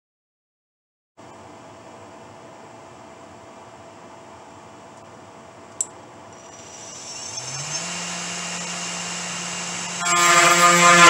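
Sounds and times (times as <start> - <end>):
spindle motor whine: 6.3 - 11.0
router bit cutting workpiece: 6.4 - 11.0.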